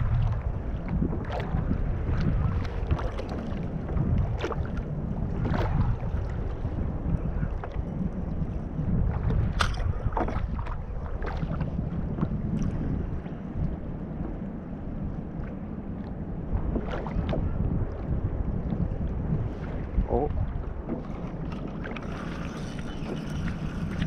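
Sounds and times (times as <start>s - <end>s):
water moving around hull: 0.0s - 24.0s
wind buffeting microphone: 0.0s - 24.0s.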